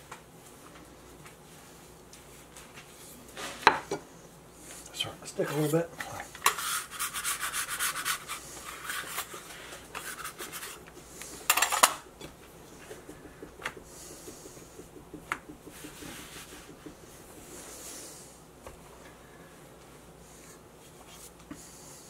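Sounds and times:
hands rubbing dough on countertop: 4.6s - 22.0s
light taps: 12.0s - 17.7s.

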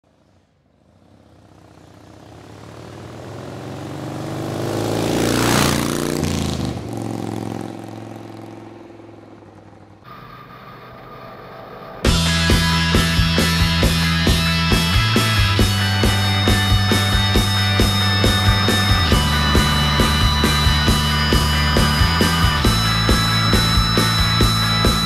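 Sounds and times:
motorcycle passing by: 0.1s - 10.5s, 15.6s - 25.0s
loud rock music: 10.1s - 25.0s.

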